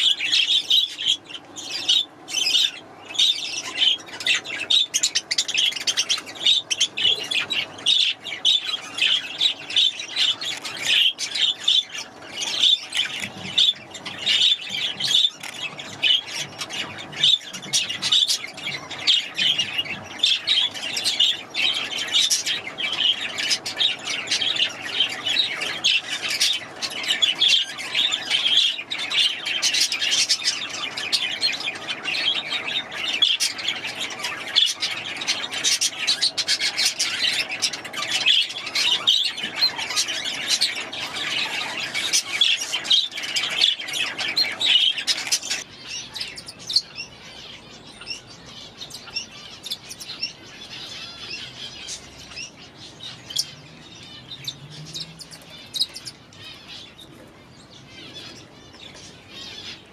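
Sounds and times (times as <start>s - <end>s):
parakeets chirping: 0.0s - 59.9s.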